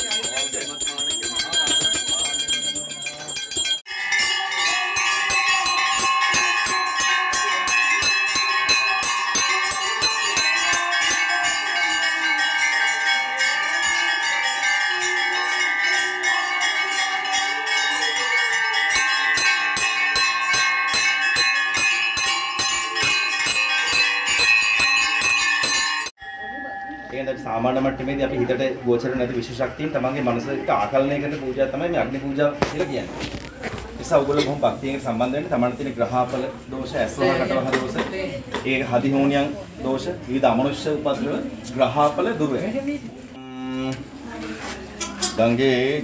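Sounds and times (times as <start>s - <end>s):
metal bells ringing rapidly: 0.0s - 32.6s.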